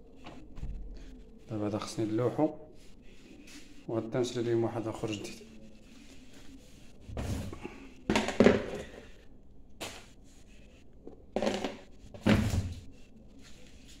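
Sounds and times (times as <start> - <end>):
plastic bin lid thunks and knocks: 11.4 - 12.8.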